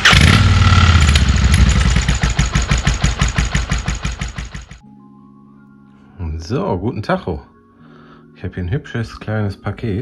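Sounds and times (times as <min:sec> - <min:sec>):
motorcycle engine idling: 0:00.0 - 0:04.8.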